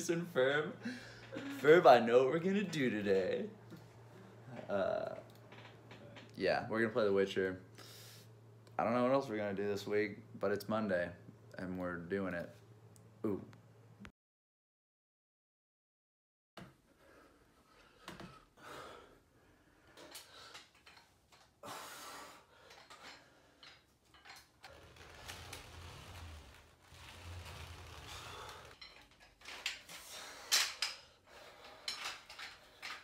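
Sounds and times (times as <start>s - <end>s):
creaks and knocks: 4.6s - 6.4s
ab wheel rolling on wooden floor: 24.3s - 29.8s.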